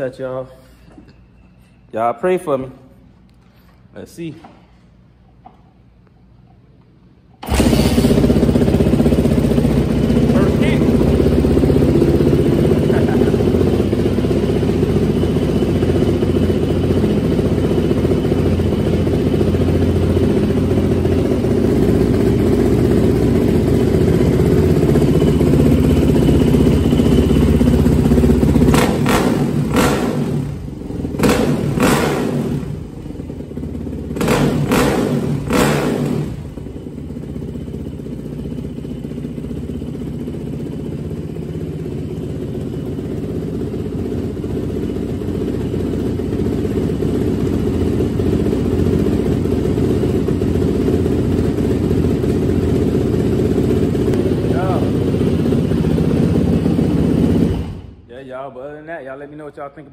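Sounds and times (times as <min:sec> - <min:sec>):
engine throttle revs: 0:07.4 - 0:13.3, 0:22.6 - 0:33.1, 0:34.1 - 0:36.7
dirt bike engine idling: 0:07.4 - 0:58.1.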